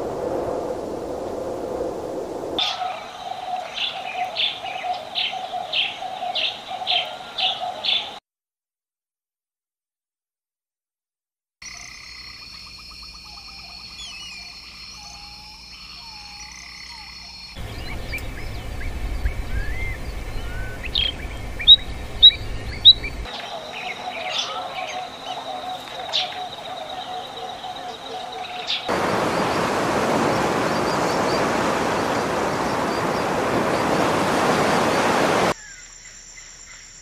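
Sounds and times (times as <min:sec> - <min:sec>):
frog chorus trilling: 0:02.6 - 0:08.2, 0:11.7 - 0:33.8
songbird chirps: 0:02.6 - 0:08.2, 0:11.7 - 0:37.0
low rumble: 0:17.6 - 0:23.3.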